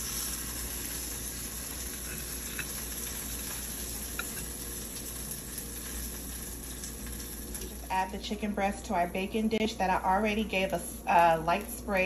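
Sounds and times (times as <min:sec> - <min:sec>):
oil sizzling in a skillet: 0:00.0 - 0:07.9.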